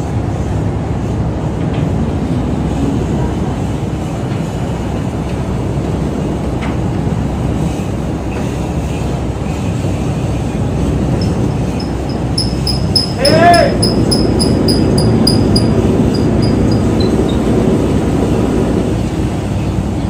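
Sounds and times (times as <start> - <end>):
ferry engines rumbling: 0.0 - 20.0
high electronic beeping: 11.2 - 17.4.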